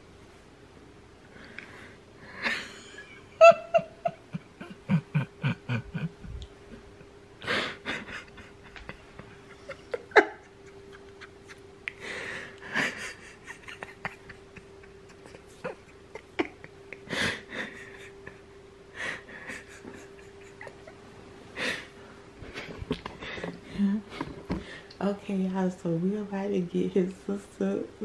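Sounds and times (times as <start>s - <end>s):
electric fan humming: 0.0s - 28.0s
person laughing: 2.4s - 6.8s, 7.4s - 21.0s.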